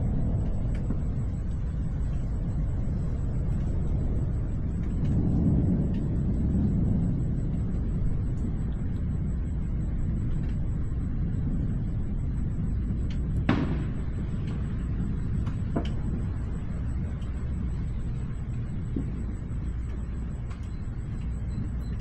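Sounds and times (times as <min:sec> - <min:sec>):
distant thunder rumbling: 0:00.0 - 0:22.0
sharp thunder crack: 0:12.6 - 0:16.8.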